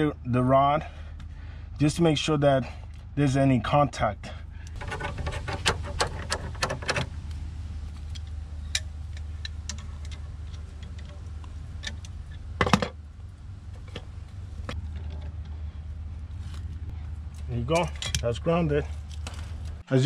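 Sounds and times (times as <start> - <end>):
steady low hum: 0.0 - 20.0
small metal clicks and rattles: 4.6 - 13.0, 17.3 - 19.8.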